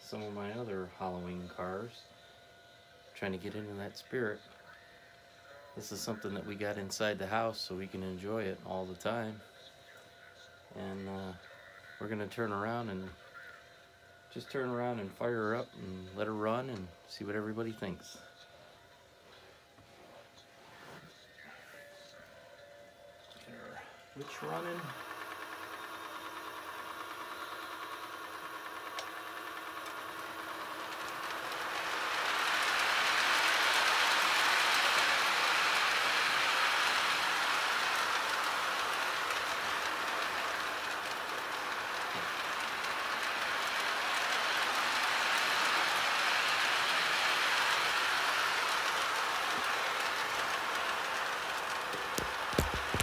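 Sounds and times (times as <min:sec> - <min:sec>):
toy train rolling rattle: 0:24.3 - 0:53.0.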